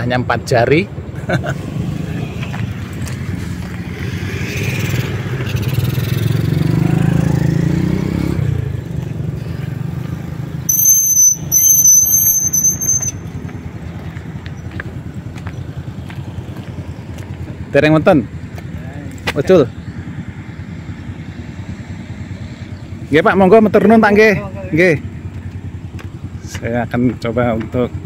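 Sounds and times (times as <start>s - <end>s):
motorcycle engine passing: 1.2s - 27.6s
loud high-pitched squeal: 10.7s - 13.4s.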